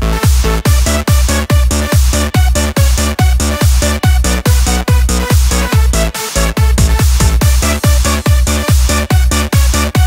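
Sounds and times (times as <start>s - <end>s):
electronic dance music: 0.1s - 10.0s
held synth chords: 6.6s - 8.4s
heavy kick drum beat: 6.6s - 9.4s.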